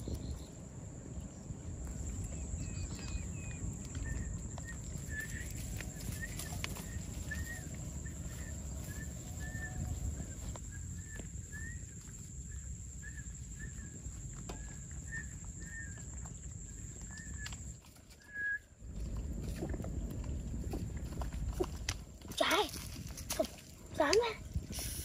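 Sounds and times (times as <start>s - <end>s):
high insect whine: 0.0s - 17.8s
low rumble: 0.0s - 17.8s, 18.7s - 24.8s
bird chirping: 2.0s - 17.7s
grass rustling: 3.8s - 25.0s.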